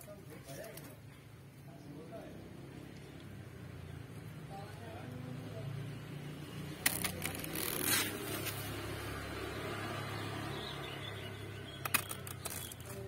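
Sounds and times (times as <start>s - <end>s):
stalks snapping: 6.8s - 8.7s, 11.7s - 13.0s
knife cutting leaf stalks: 6.8s - 8.9s.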